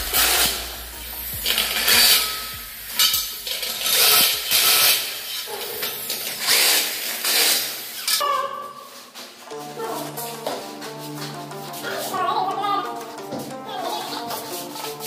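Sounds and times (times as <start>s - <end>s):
electric drill boring through metal: 0.0s - 8.2s.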